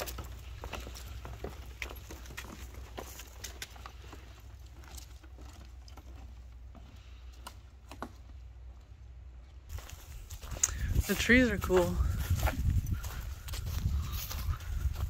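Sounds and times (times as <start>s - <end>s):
footsteps on dirt trail: 0.0s - 15.0s.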